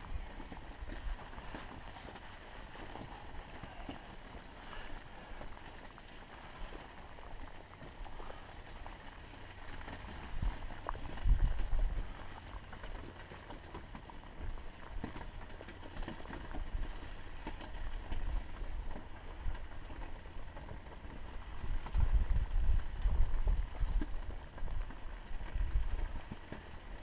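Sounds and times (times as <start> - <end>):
wind buffeting microphone: 0.0 - 12.9, 16.5 - 27.0
fire crackling: 0.0 - 27.0.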